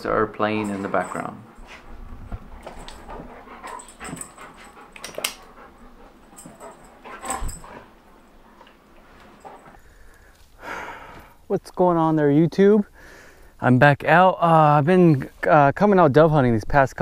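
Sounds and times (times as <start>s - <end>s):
dog noises: 0.0s - 9.8s
dogs scuffling: 0.0s - 9.8s.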